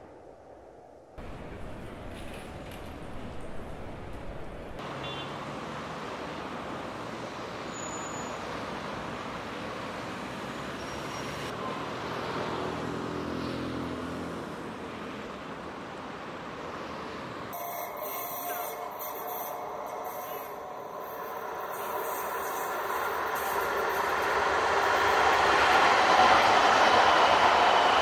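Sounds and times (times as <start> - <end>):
steady hum of traffic: 1.2 - 28.0
passing vehicle engine: 8.3 - 15.4.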